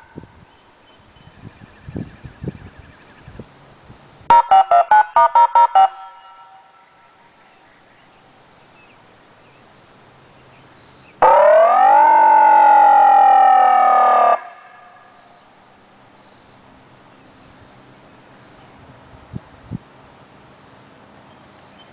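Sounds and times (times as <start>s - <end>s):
siren wail: 4.3s - 6.5s, 11.2s - 15.2s.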